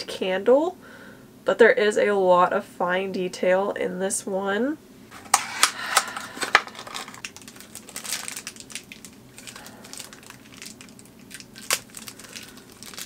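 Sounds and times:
cardboard packaging crinkling: 5.2 - 13.0.

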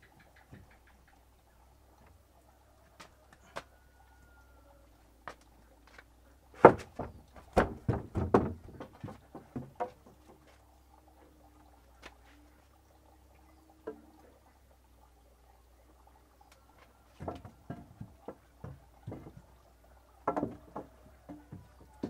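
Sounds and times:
wooden boards knocking: 6.5 - 10.5, 17.1 - 19.5, 20.2 - 22.0.

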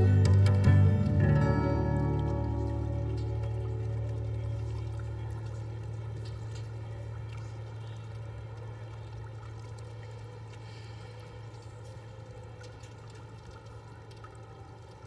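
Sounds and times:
low hum: 0.0 - 15.0
faint ticks: 7.4 - 15.0.

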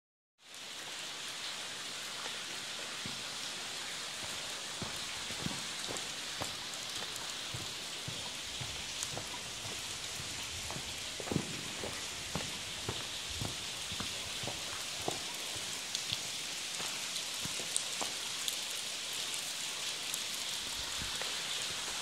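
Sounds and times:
falling water hiss: 0.4 - 22.0
soft knocks: 4.2 - 15.3.

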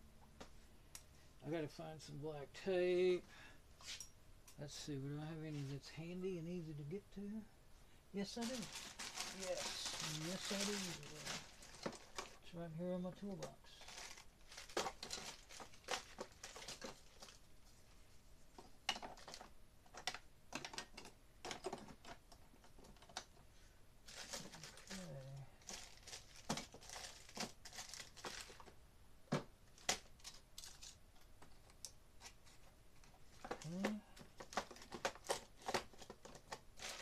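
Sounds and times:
rummaging through toolbox: 8.2 - 12.5, 13.1 - 17.4, 18.8 - 23.4, 24.1 - 28.7, 32.4 - 37.0.

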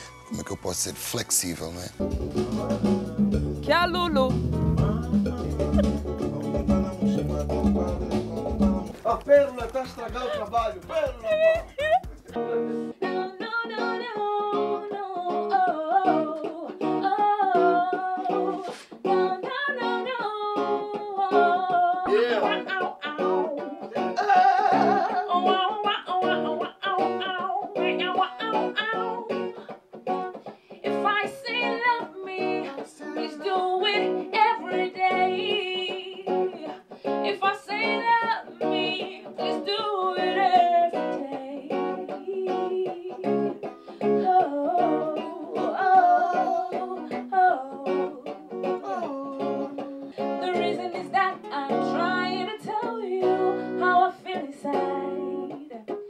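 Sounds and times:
clean electric guitar: 0.0 - 56.0
woman singing into a microphone: 13.0 - 56.0.

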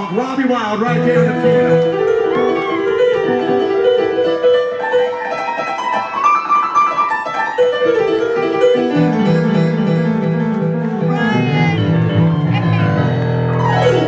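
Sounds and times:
honky-tonk piano solo: 0.8 - 14.0.

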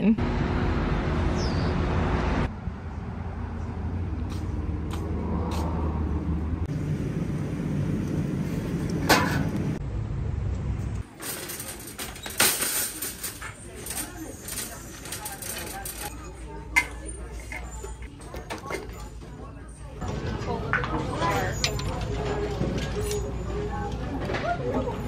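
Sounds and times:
traffic rumble: 0.0 - 25.0
shopping cart rattling: 11.0 - 25.0.

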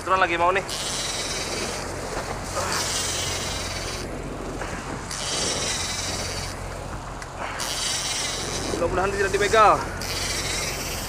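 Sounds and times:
steady low hum: 0.0 - 11.0
fishing reel drag buzzing: 0.6 - 11.0.

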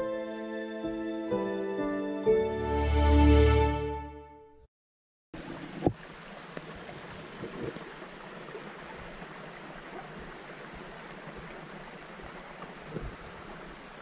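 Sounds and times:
creek rushing over rocks: 5.4 - 14.0.

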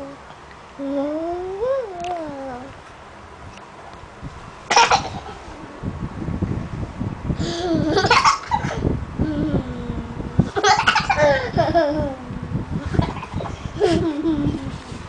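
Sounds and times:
toddler laughing: 7.4 - 8.8, 10.4 - 14.8.

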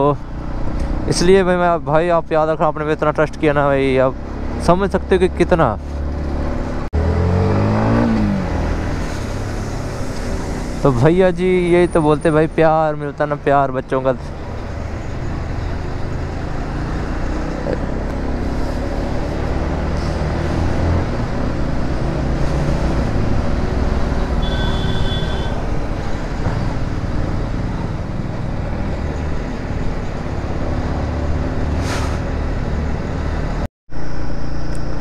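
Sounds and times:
road and wind noise: 0.0 - 35.0
vehicle horn: 24.2 - 25.7.

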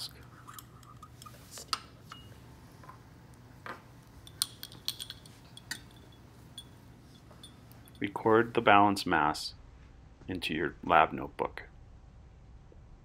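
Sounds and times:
steady low hum: 0.0 - 13.0
glassware clinking: 4.2 - 8.2.

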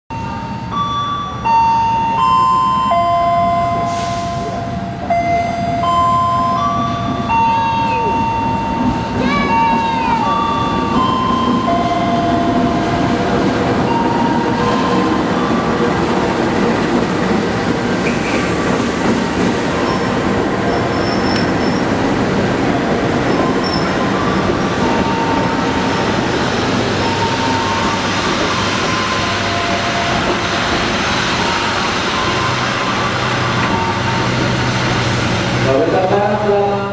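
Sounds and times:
locomotive passing: 0.2 - 36.9
train wheels rumbling on rail: 0.7 - 36.9
wheels squealing: 19.8 - 22.1, 23.3 - 26.1.

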